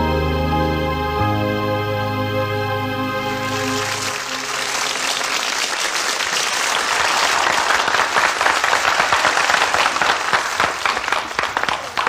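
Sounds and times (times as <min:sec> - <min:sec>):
audience applauding: 0:03.3 - 0:12.0.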